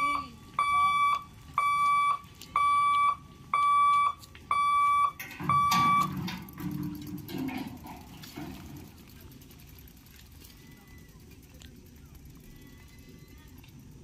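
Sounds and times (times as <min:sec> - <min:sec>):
level crossing warning beeper: 0:00.0 - 0:06.4.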